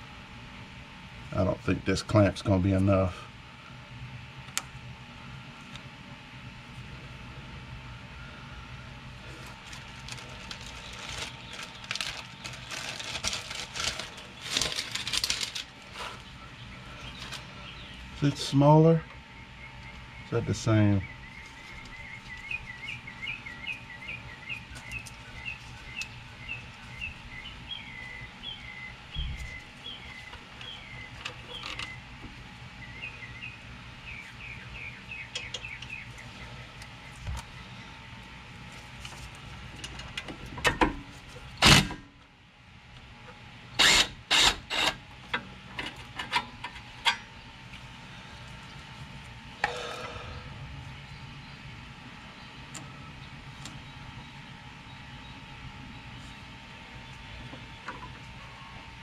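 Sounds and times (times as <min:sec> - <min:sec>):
bird chirping: 0:16.2 - 0:18.3, 0:19.3 - 0:32.0, 0:32.8 - 0:38.0.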